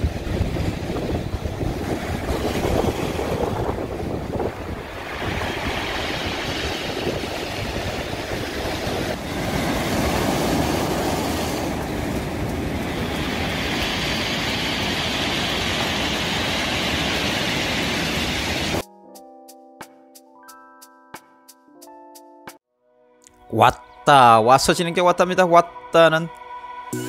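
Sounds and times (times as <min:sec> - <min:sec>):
sea waves breaking on beach: 0:00.0 - 0:18.8
wind buffeting microphone: 0:00.0 - 0:18.8.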